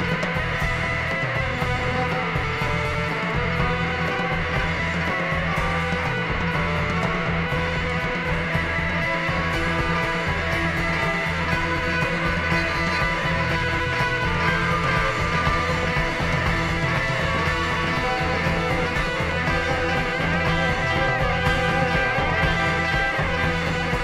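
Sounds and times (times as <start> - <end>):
bass guitar holding long notes: 0.0 - 24.0
electric guitars playing: 0.0 - 24.0.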